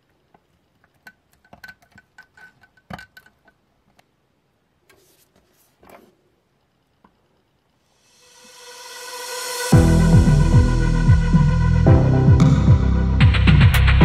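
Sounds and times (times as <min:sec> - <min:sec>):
soft rustles: 0:04.8 - 0:06.3.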